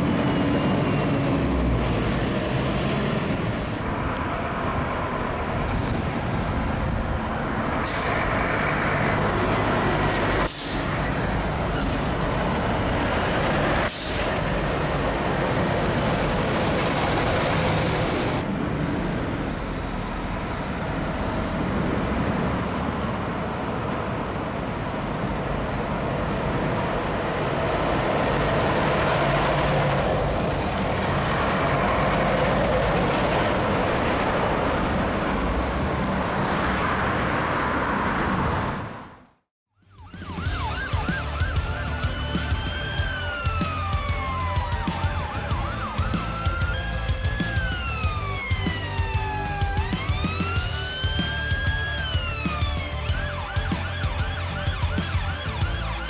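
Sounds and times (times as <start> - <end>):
diesel engines driving past: 0.0 - 39.4, 40.1 - 56.0
road noise: 0.0 - 56.0
air brakes hissing: 7.8 - 8.3, 10.1 - 10.9, 13.8 - 14.4.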